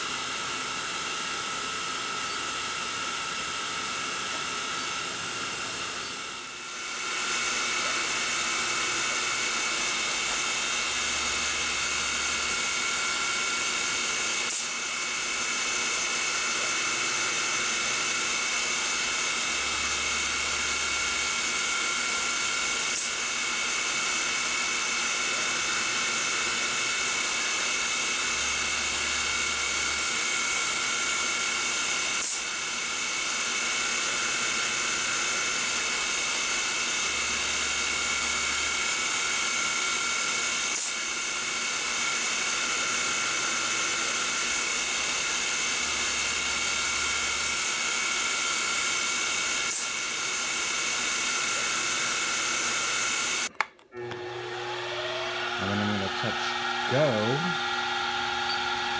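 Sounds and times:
high motor whine: 0.0s - 58.9s
stepper motors humming: 0.1s - 27.5s, 54.0s - 58.9s.

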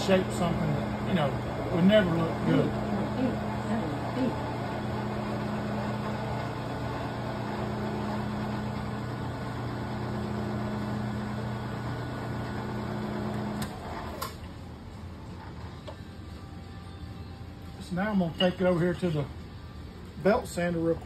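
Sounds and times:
milling machine spindle running: 0.0s - 14.2s.

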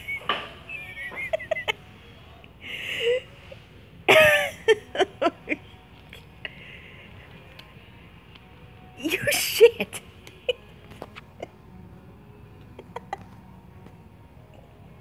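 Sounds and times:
person laughing: 0.8s - 2.0s, 4.1s - 5.8s, 12.7s - 13.4s.

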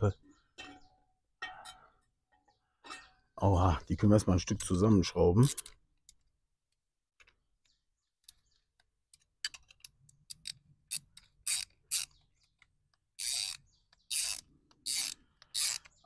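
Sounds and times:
metal parts clicking and scraping: 5.4s - 6.3s, 8.2s - 16.0s.

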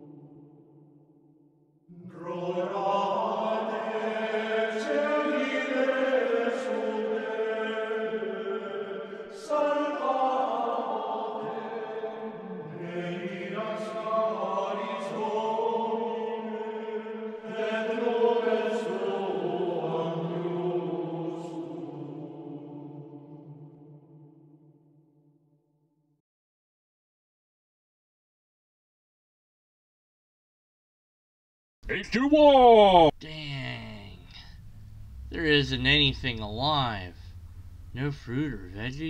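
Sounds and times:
choir singing slow chant: 0.0s - 1.3s, 1.9s - 25.1s.

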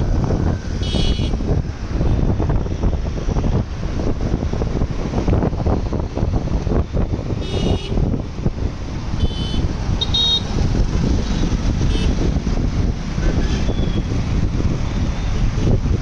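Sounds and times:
motorcycle riding: 0.0s - 16.0s
traffic noise: 0.0s - 16.0s
wind rushing over microphone: 0.0s - 16.0s
vehicle horn beeps: 0.8s - 1.4s, 7.4s - 8.0s, 9.2s - 10.5s.

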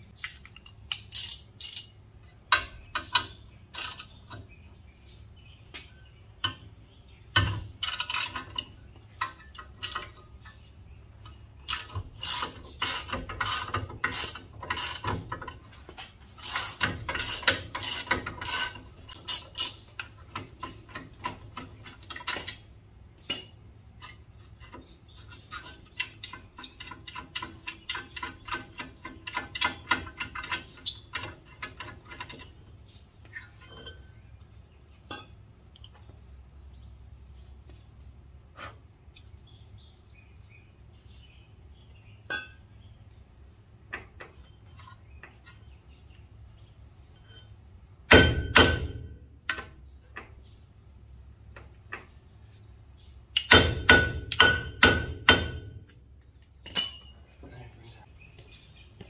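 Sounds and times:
metallic clinks and knocks: 56.6s - 57.6s.

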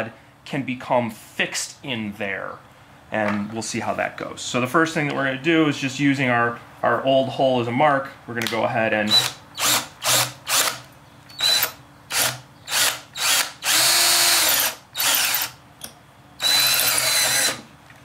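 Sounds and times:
cordless drill boring metal pipe: 9.1s - 10.8s, 11.4s - 15.6s, 16.4s - 17.6s.

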